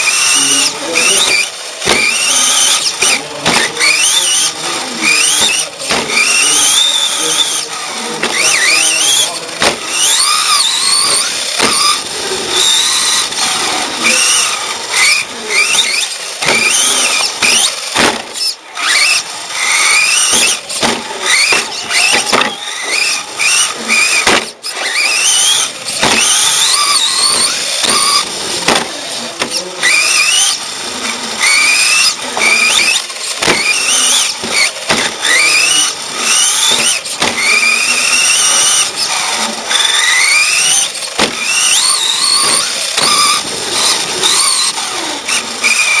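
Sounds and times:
electric motor and gears whining: 0.0s - 46.0s
sharp knocks: 1.8s - 2.1s, 5.4s - 6.2s, 9.6s - 9.9s, 17.4s - 18.4s, 20.3s - 22.6s, 24.2s - 24.6s, 26.0s - 26.4s, 28.6s - 29.6s, 33.4s - 33.7s, 34.4s - 35.2s, 41.2s - 41.6s.

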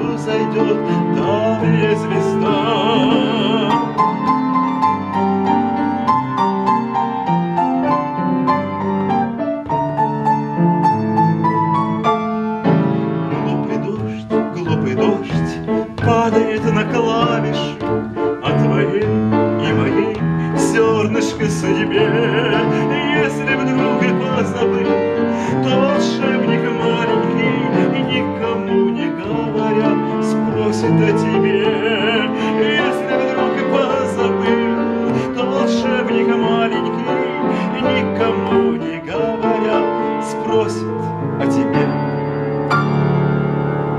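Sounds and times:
man singing with vibrato: 0.0s - 4.8s, 12.8s - 42.2s
upright piano playing: 0.0s - 43.9s.

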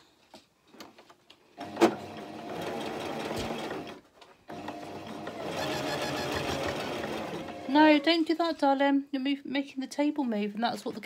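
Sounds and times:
sewing machine stitching: 1.6s - 8.3s.

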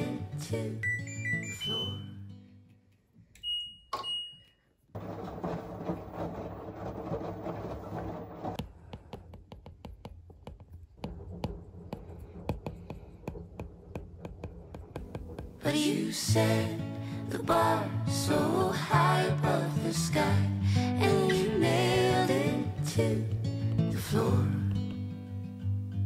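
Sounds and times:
high electronic beeps: 0.8s - 2.2s
stylus tapping on glass screen: 8.9s - 15.6s.

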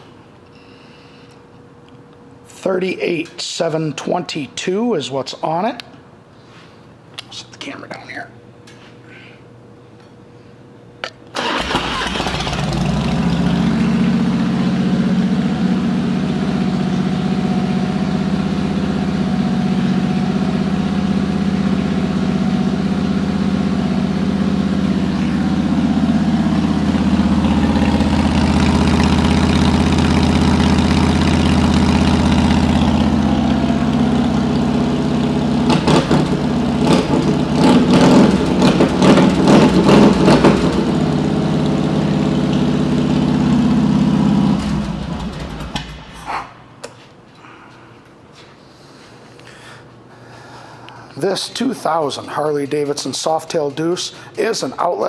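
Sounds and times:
motorcycle engine starting: 11.3s - 46.2s
motorcycle engine revving: 11.4s - 46.1s
motorcycle engine idling: 12.6s - 46.0s.

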